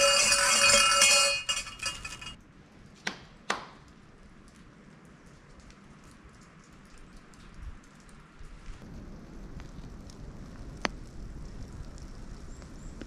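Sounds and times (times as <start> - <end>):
shrine bells jangling: 0.0 - 2.4.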